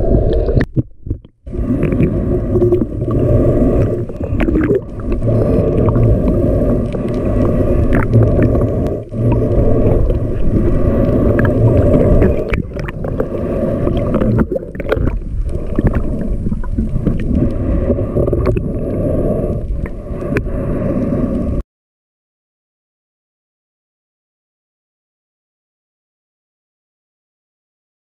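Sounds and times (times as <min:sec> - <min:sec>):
underwater rumble of moving water: 0:00.0 - 0:21.6.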